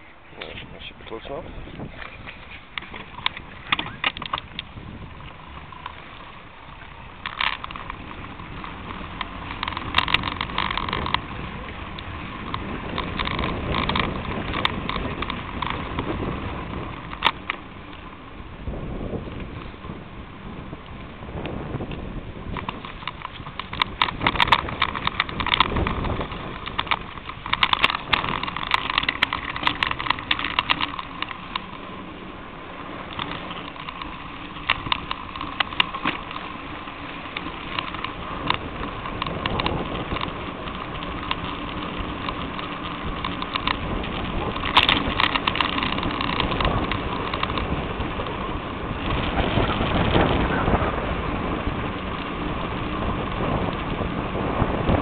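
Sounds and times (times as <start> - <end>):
wind rush: 0.0 - 5.8, 18.3 - 55.0
bicycle rattles and clicks: 0.0 - 55.0
tyre noise: 0.0 - 55.0.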